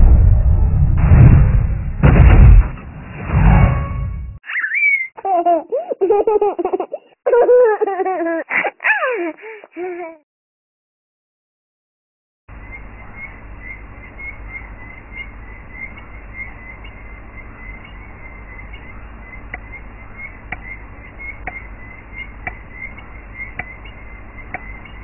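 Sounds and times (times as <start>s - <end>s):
small high chirp: 4.4s - 5.2s
low rumble and hiss: 12.5s - 25.0s
sharp tick: 20.5s - 20.7s, 21.4s - 21.6s, 23.6s - 23.8s.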